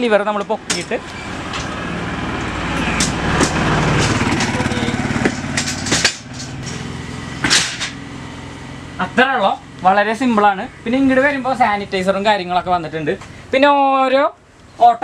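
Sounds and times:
stretcher trolley rattling on casters: 0.4s - 8.0s
sharp metal clanks: 2.8s - 8.0s.

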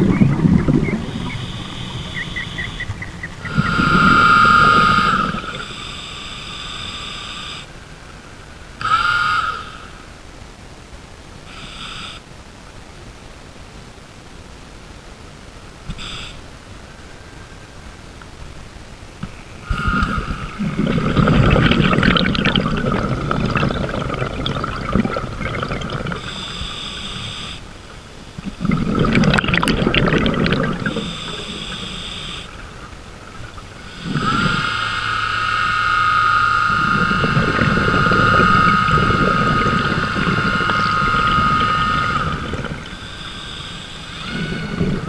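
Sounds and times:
underwater exhaled bubbles rushing: 0.0s - 5.8s, 19.7s - 27.2s, 28.3s - 34.7s, 36.6s - 45.0s
high electric whine: 0.0s - 45.0s
low hum: 15.8s - 45.0s.

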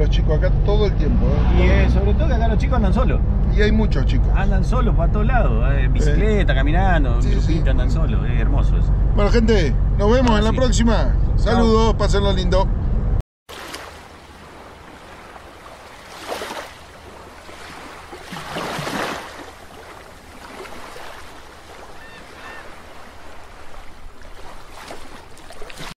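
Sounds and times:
rush of ocean water: 13.5s - 26.0s.

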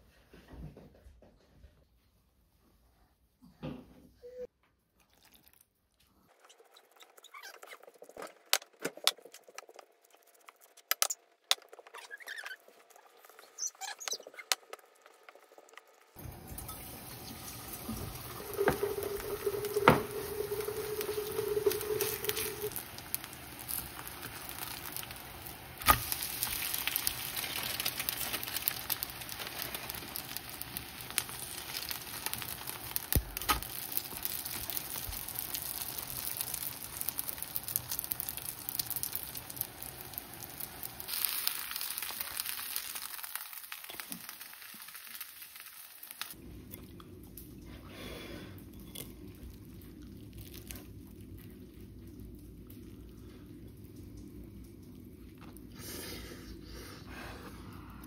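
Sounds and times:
batter sizzling in oil: 12.0s - 46.4s
batter squelching when stirred: 17.2s - 41.3s, 48.6s - 54.0s.

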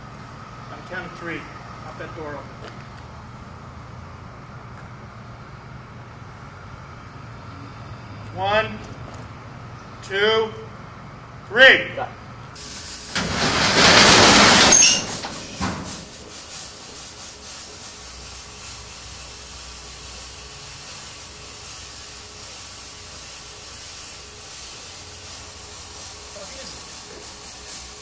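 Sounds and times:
smoke effect hissing: 12.6s - 28.0s.

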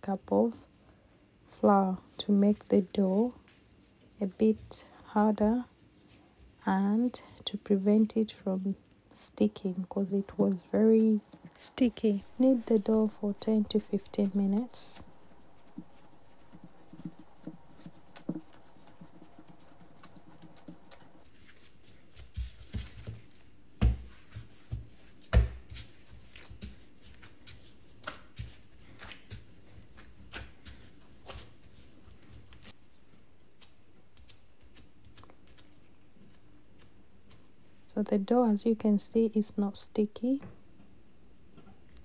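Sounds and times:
dough being kneaded: 1.5s - 38.6s.

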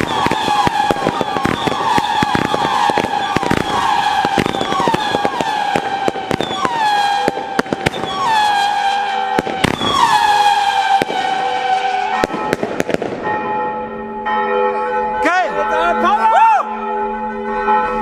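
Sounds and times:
firework crackling: 0.0s - 13.3s
whistling fireworks: 0.0s - 13.3s
firework bangs: 0.0s - 13.5s.

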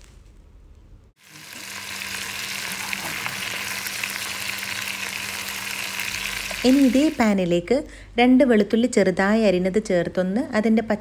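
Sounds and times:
chicken sizzling in oil: 1.2s - 7.3s.

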